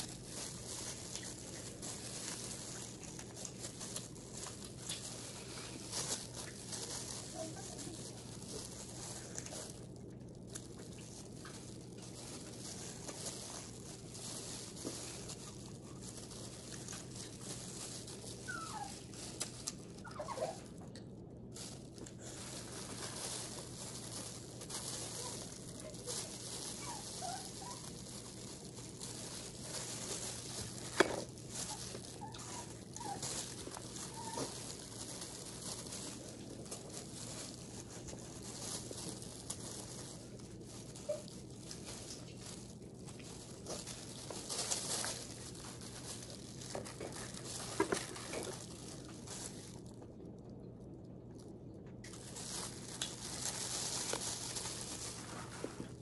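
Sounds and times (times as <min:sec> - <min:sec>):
quiet chewing and sucking: 0:02.7 - 0:06.7.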